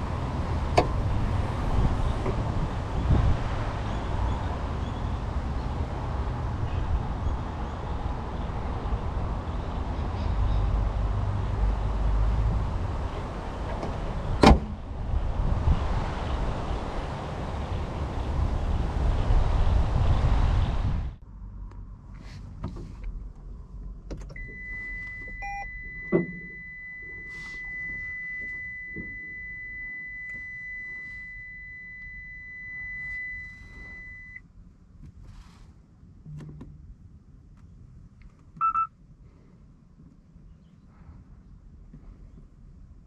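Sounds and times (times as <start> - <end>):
thump: 14.4 - 14.8, 26.1 - 26.6
short electronic beeps: 24.4 - 34.4, 38.6 - 38.9.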